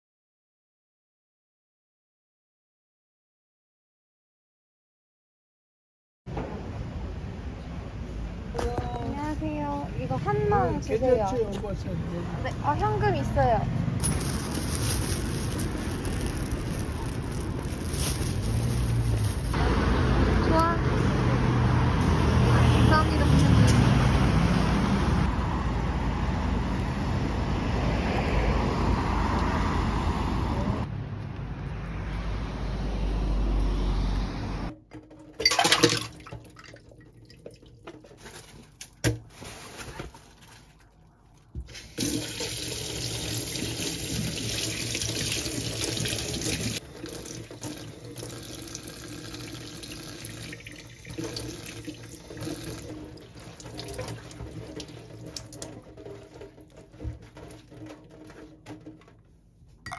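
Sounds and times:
street traffic rumble: 0:06.3 - 0:34.8.

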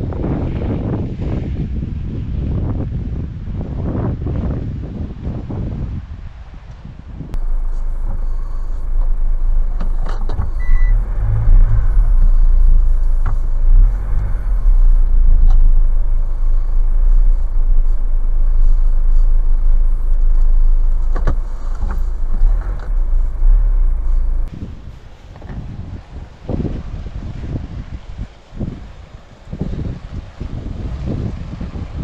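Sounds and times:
car engine and tyres rumbling: 0:00.0 - 0:32.0.

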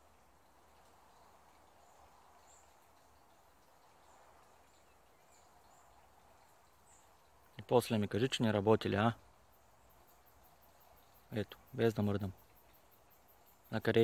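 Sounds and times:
faint outdoor hiss: 0:00.0 - 0:14.0.

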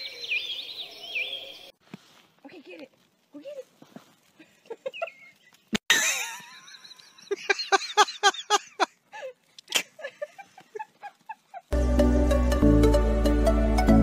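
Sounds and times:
person laughing: 0:05.8 - 0:11.8.

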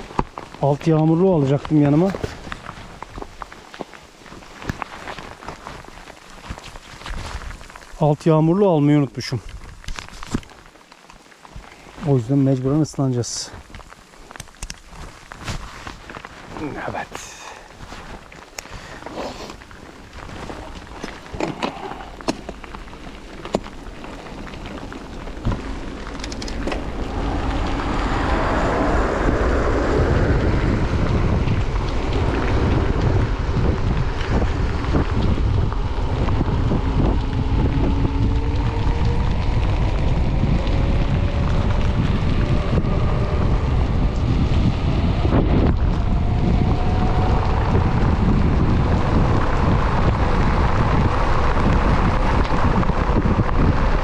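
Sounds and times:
wind noise on microphone: 0:00.0 - 0:54.0
tyre hiss on wet road: 0:11.3 - 0:26.0.

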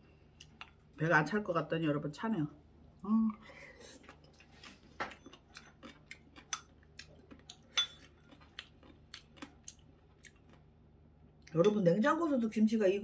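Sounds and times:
spoon clinking on ceramic bowl: 0:07.7 - 0:08.0.

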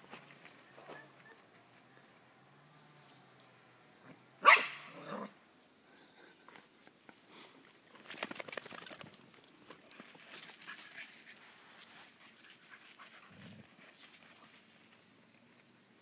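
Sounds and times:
animals scuffling on grass: 0:00.0 - 0:03.1, 0:06.5 - 0:16.0
puppy barking: 0:04.4 - 0:05.3.

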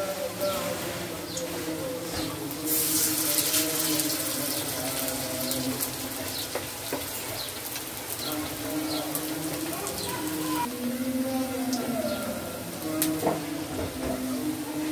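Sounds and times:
batter sizzling in hot oil: 0:00.0 - 0:10.8.

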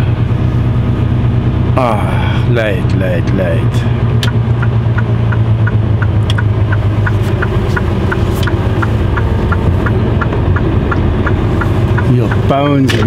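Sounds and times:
truck diesel engine running: 0:00.0 - 0:13.0
light ticking: 0:04.2 - 0:13.0.

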